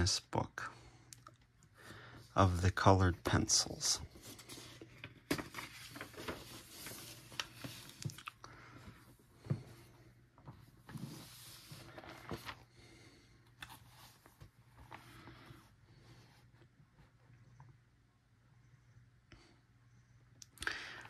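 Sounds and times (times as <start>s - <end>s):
paper rustling: 4.1s - 8.4s, 10.5s - 12.7s.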